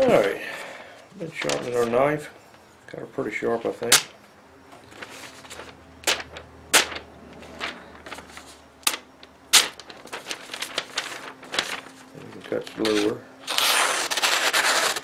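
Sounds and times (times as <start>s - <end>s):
paper snaps and clicks: 3.9s - 4.1s, 5.5s - 15.0s.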